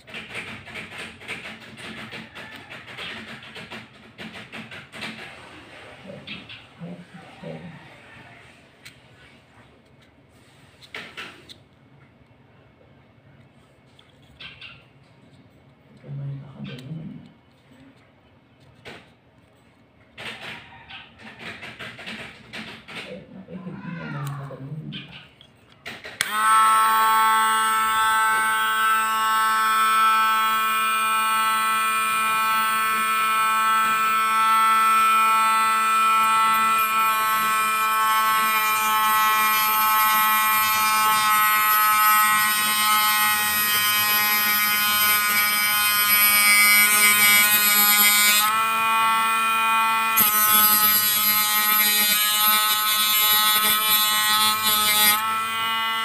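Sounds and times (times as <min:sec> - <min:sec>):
electric rotary tool whining: 0:26.2 - 0:56.0.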